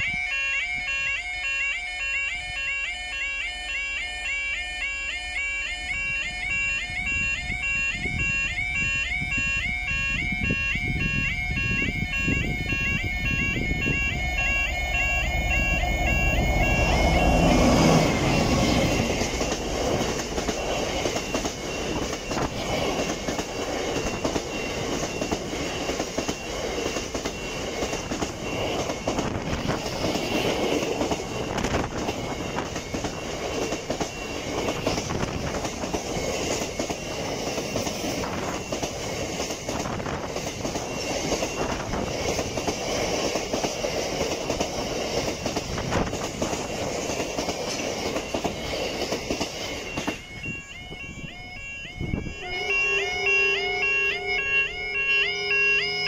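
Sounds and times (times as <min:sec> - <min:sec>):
diesel locomotive passing: 0:00.0 - 0:56.0
train wheels rumbling: 0:06.8 - 0:56.0
wheels clattering over rail joints: 0:16.1 - 0:50.4.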